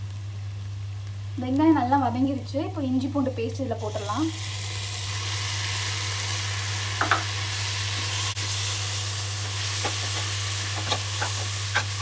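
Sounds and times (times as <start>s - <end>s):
paste sizzling in hot oil: 3.7s - 12.0s.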